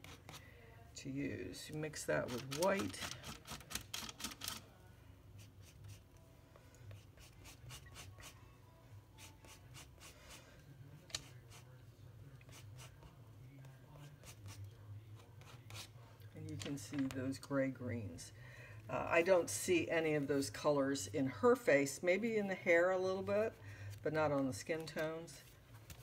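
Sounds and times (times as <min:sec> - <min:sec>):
palette knife scraping paint: 0:00.0 - 0:00.4, 0:06.9 - 0:08.4, 0:14.1 - 0:16.0.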